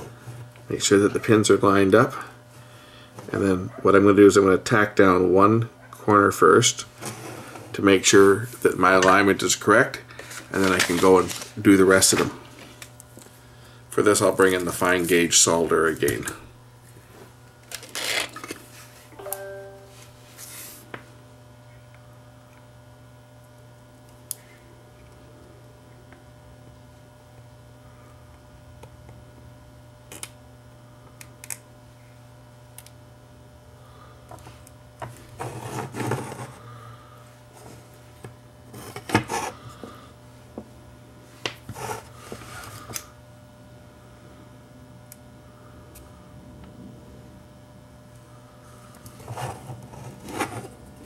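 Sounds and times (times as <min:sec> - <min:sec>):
low electrical hum: 0:00.0 - 0:51.0
short rustling scrapes: 0:07.0 - 0:07.8, 0:49.1 - 0:50.8.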